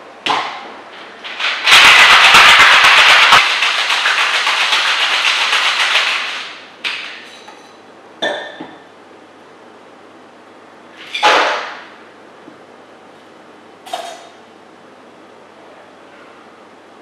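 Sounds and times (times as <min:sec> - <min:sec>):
ice rattling in cocktail shaker: 0:01.3 - 0:06.4.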